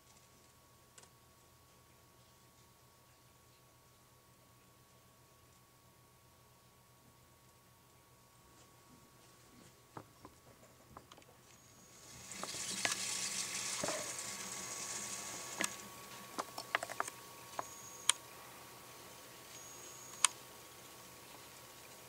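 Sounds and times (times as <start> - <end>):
beer fizzing bubbles: 11.8 - 17.6.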